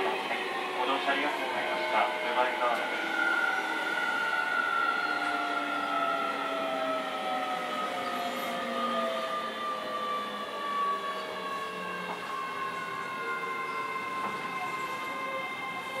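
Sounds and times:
traction motors whining: 0.0 - 16.0
train running rumble: 0.0 - 16.0.

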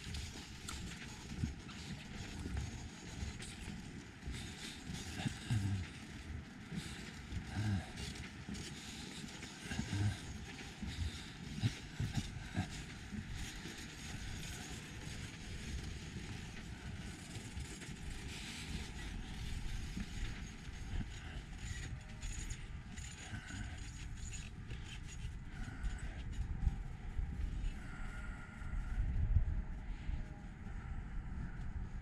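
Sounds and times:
low rumble: 24.5 - 32.0.

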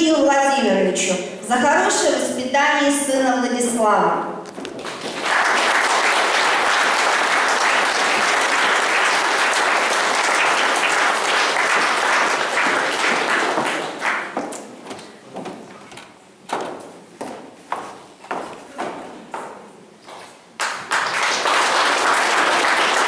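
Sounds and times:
audience applauding: 4.6 - 14.6, 20.6 - 23.0.

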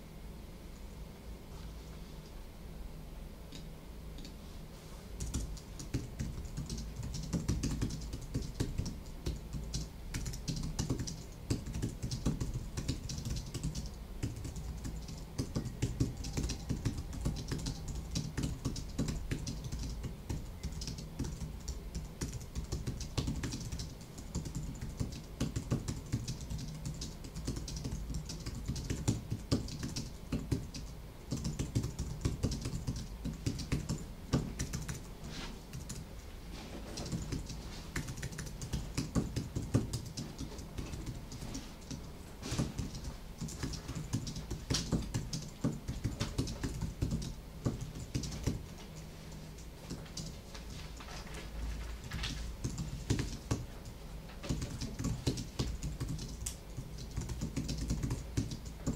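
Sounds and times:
computer keyboard typing: 5.2 - 58.9.

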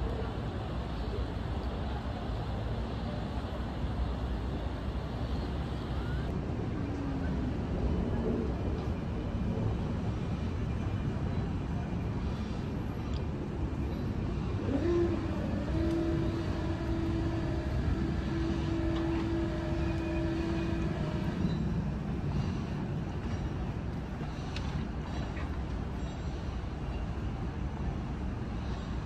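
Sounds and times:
distant traffic rumble: 0.0 - 29.0
mechanical whine: 13.8 - 22.3.

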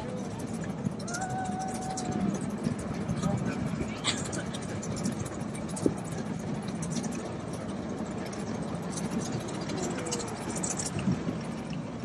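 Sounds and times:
miniature steam train rumbling: 0.0 - 12.0.

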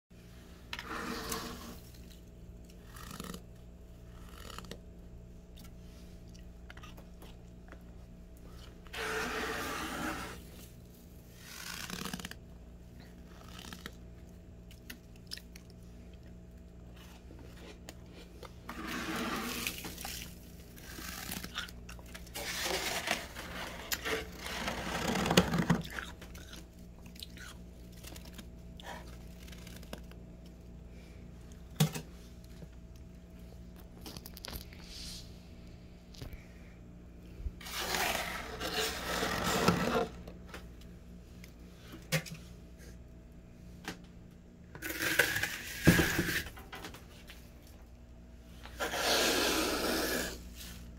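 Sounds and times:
fingers scraping frost: 8.9 - 10.5.

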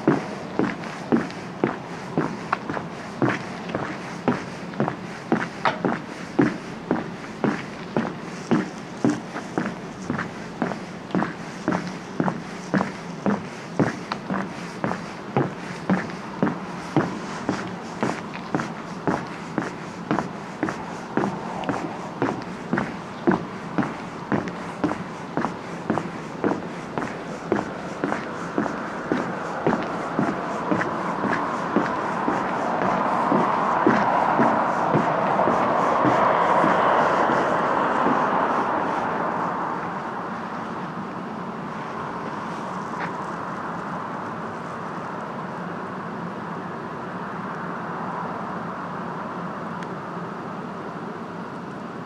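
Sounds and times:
footsteps walking: 0.0 - 39.4
vehicle passing: 0.0 - 41.0
faint steady hum: 0.0 - 52.0.

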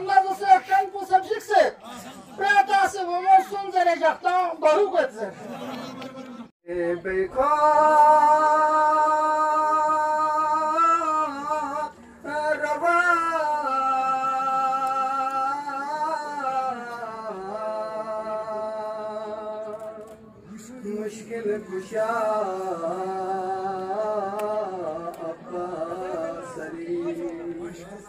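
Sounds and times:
man singing unaccompanied: 6.6 - 28.0.

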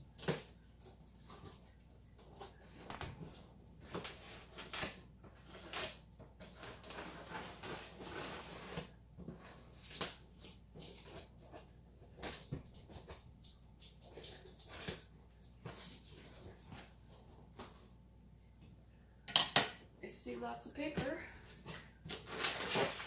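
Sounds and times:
cardboard rustling: 20.8 - 23.0.

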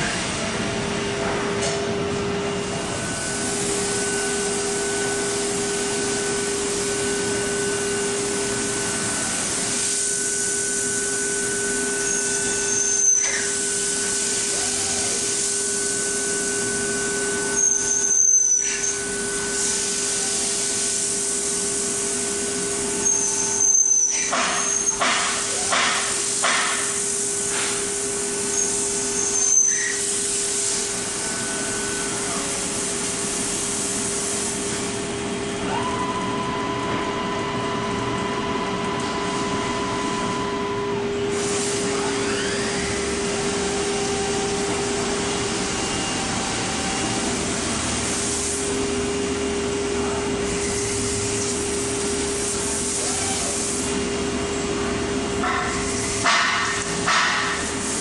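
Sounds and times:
higher machine whine: 0.0 - 24.9, 34.8 - 57.1
milling machine whine: 0.0 - 26.2, 26.8 - 58.0
coolant spraying hiss: 2.9 - 36.0, 41.2 - 58.0.

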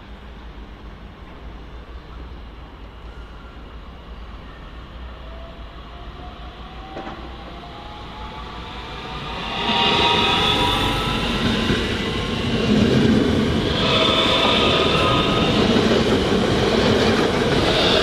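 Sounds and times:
train wheels rolling on rails: 6.1 - 18.0.

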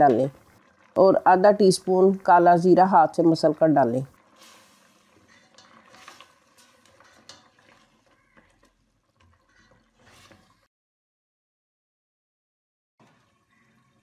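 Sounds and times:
spatula scraping metal pot: 4.3 - 10.7.

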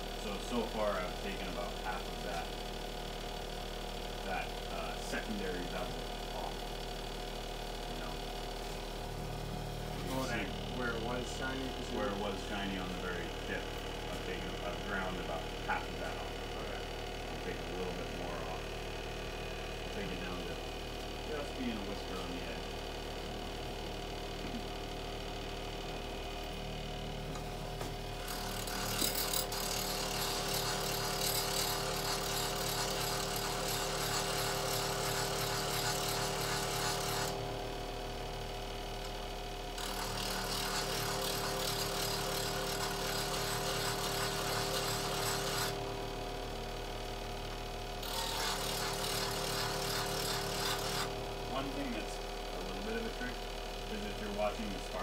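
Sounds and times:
bench grinder running: 0.0 - 55.0
chisel grinding on wheel: 28.2 - 37.4, 39.8 - 45.8, 48.0 - 51.1.

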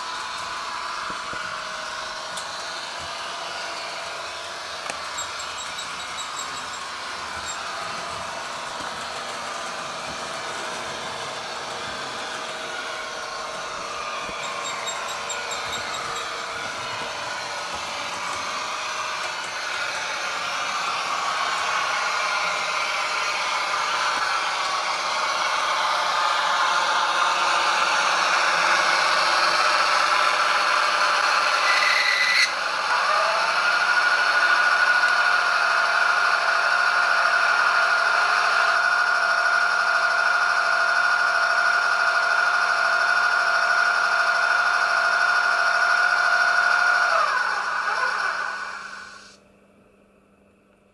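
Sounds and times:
model train wheels on track: 0.0 - 49.4
diesel engine sound from small speaker: 47.0 - 49.4.

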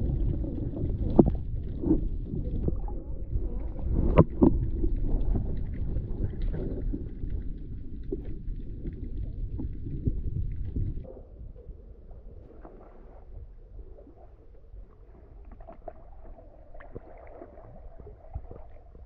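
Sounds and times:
underwater knocks and pops: 0.0 - 11.1, 16.8 - 19.0
underwater rumble of moving water: 0.0 - 19.0.

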